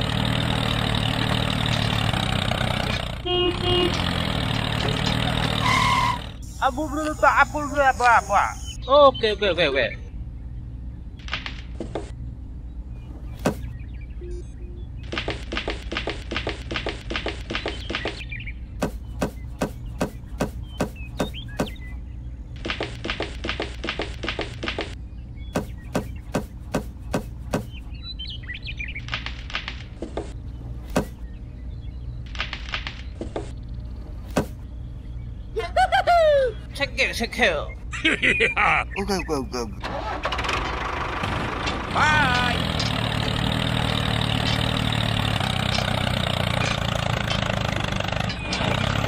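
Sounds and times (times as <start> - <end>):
low hum: 9.9 - 36.8
crunching and clicking in sand: 28.8 - 31.3, 32.2 - 34.6.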